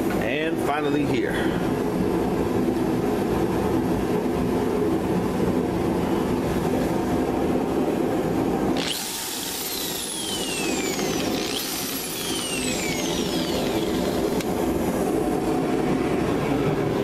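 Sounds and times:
air compressor running: 7.2 - 16.1
electric drill motor whine: 8.8 - 14.6.

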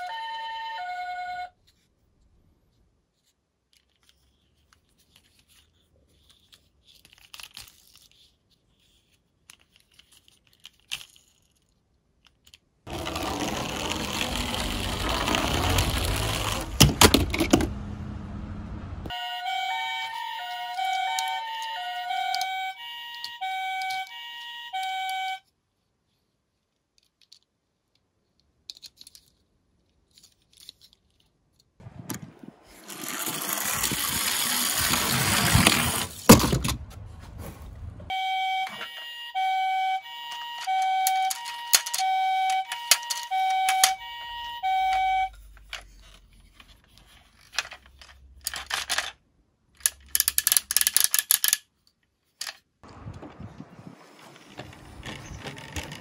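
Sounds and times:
toy cars clattering into box: 12.2 - 17.7, 40.3 - 44.0, 45.6 - 49.2, 49.8 - 51.7
toy cars rattling down slope: 12.3 - 17.7, 32.6 - 36.8, 40.2 - 49.2, 49.8 - 51.7, 54.1 - 56.0.

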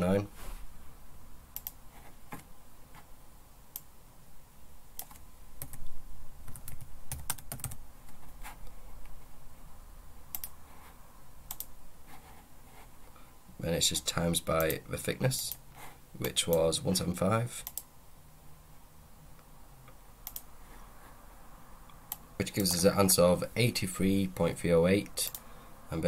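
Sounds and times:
keyboard typing: 5.0 - 5.9, 6.5 - 8.3, 11.5 - 11.7.

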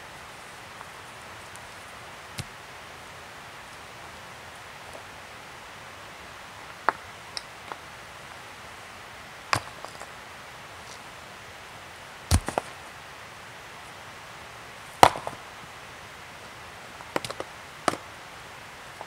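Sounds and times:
rocks knocking together: 12.3 - 12.7.

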